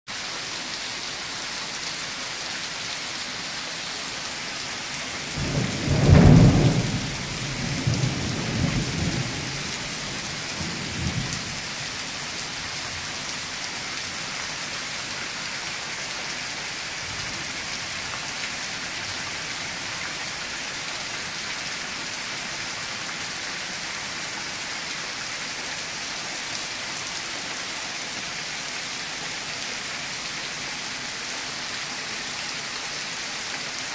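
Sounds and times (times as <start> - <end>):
steady rain falling: 0.1 - 33.9
thunder clap and rumbles: 5.3 - 11.6.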